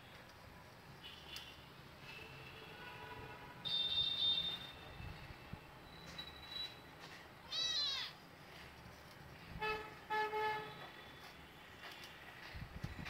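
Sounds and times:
vehicle horn honking: 1.0 - 4.8, 9.6 - 11.1
kitten meowing: 7.5 - 8.2.

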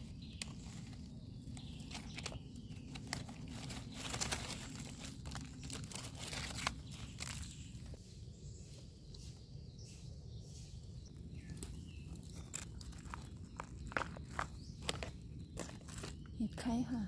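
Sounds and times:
dry leaves crackling: 0.0 - 8.0, 10.6 - 16.3.

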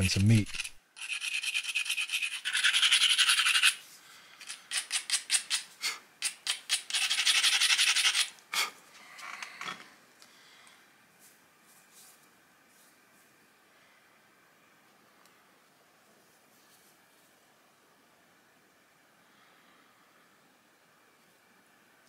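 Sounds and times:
knapping tool scraping stone: 0.4 - 3.8.

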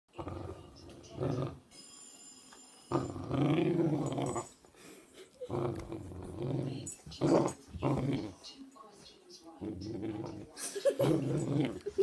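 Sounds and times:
dog growling: 0.1 - 1.7, 2.9 - 4.5, 5.4 - 8.4, 9.6 - 12.0.

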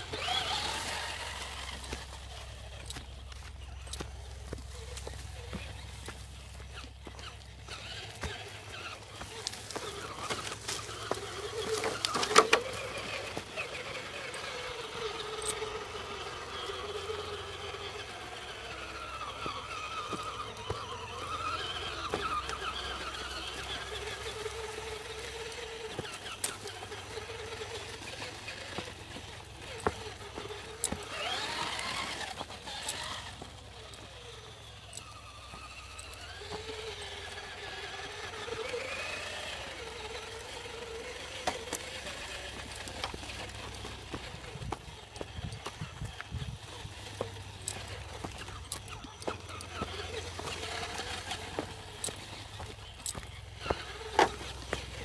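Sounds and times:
electric motor and gears whining: 0.0 - 55.0
clicks and knocks on rocks: 3.9 - 14.5.

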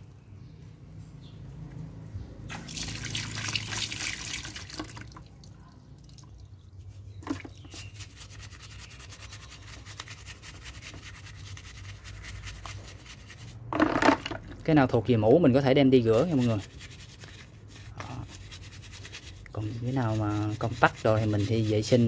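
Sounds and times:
water splashing: 2.5 - 5.5
brush scrubbing plastic: 6.8 - 13.7, 15.8 - 22.0.

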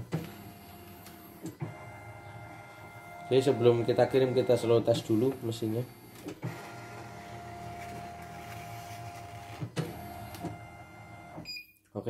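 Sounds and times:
embroidery machine motor whine: 0.0 - 11.4.

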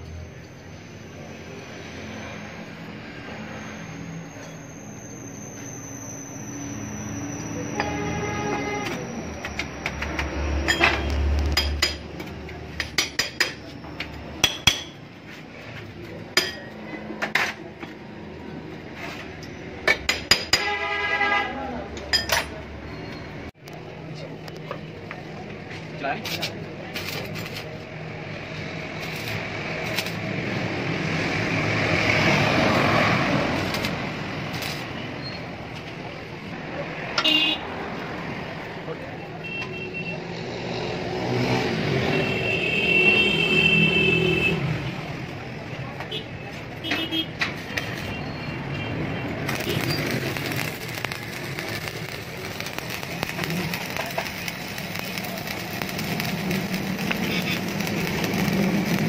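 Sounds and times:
sharp welding pops: 26.2 - 27.7, 29.0 - 30.4, 31.8 - 35.0, 46.9 - 48.2, 49.3 - 59.0
welding arc crackling: 26.2 - 36.0, 46.6 - 59.0
gas torch flame hissing: 49.4 - 59.0.

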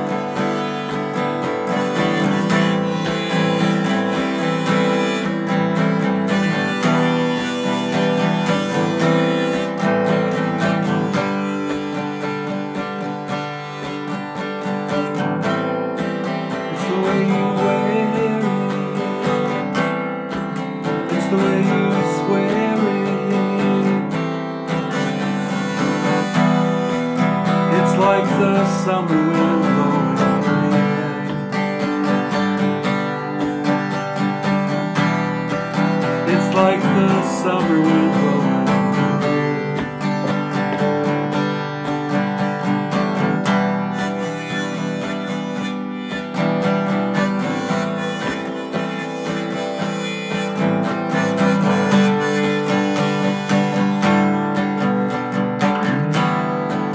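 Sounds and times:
harmonica melody: 0.0 - 56.9
strummed acoustic guitar: 0.0 - 56.9.

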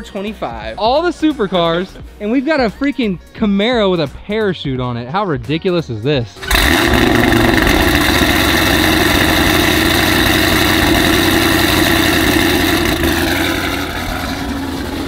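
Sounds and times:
car engine idling loud: 6.4 - 15.0.

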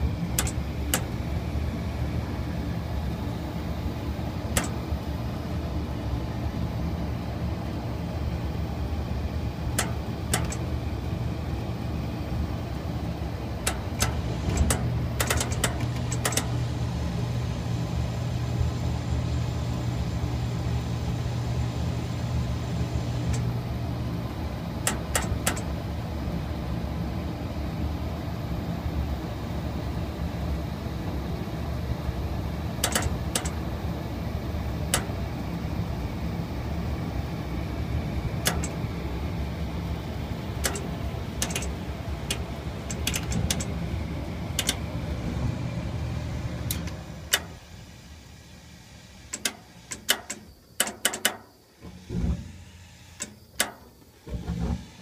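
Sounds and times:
gas furnace humming: 0.0 - 55.0
sharp clicks: 0.3 - 1.1, 4.5 - 4.8, 9.7 - 10.7, 13.6 - 16.5, 24.9 - 25.7, 32.8 - 33.6, 34.9 - 35.2, 38.4 - 38.8, 40.6 - 43.8, 44.6 - 44.8, 49.3 - 51.5, 53.2 - 54.0.

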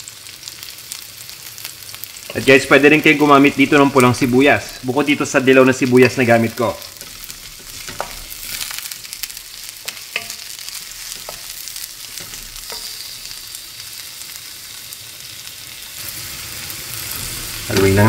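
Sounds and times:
onions sizzling in hot oil: 0.0 - 18.0
wooden spatula scraping a pan: 6.0 - 13.4.

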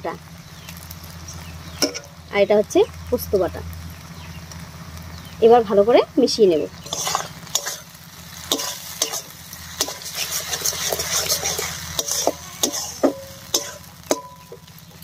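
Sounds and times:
masala sizzling in oil: 0.0 - 15.0
metal spatula scraping pan: 6.8 - 14.6.

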